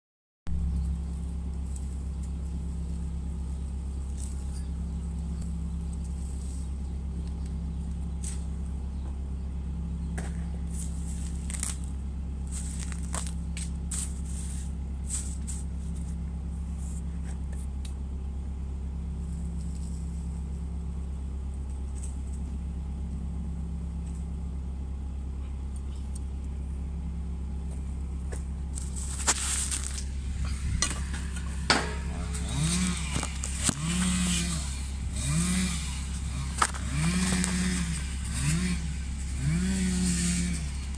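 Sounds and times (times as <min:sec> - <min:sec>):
diesel engine idling and revving: 0:00.5 - 0:40.9
sharp knocks: 0:30.8 - 0:32.4.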